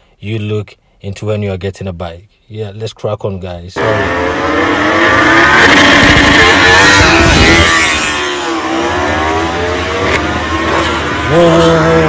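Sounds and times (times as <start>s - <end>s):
racing motorcycle engines revving: 3.8s - 12.0s.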